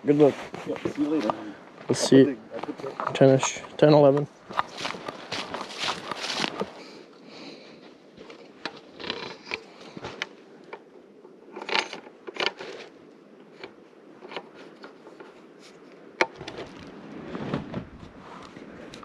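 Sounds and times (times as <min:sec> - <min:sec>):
clothing rustling: 0:04.5 - 0:07.0.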